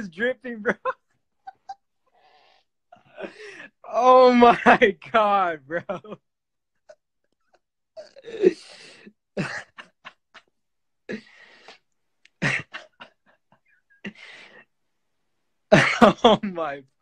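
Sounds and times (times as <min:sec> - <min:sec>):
young man laughing: 0:00.6 - 0:01.9.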